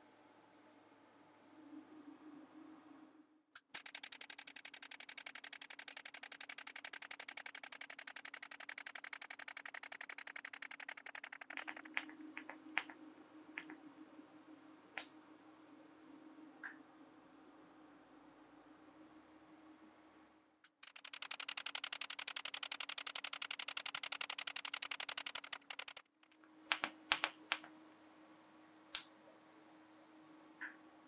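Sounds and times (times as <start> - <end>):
sharp ticks: 3.6 - 13.8, 20.6 - 27.6.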